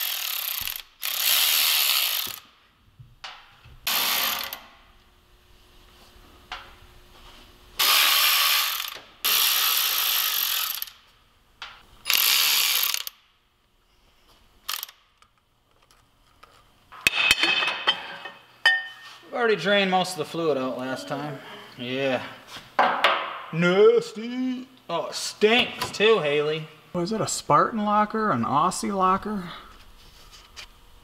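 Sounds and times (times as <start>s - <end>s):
electric ratchet spinning: 0.0s - 2.5s, 3.8s - 4.7s, 7.8s - 11.0s, 12.0s - 13.2s, 14.6s - 15.1s.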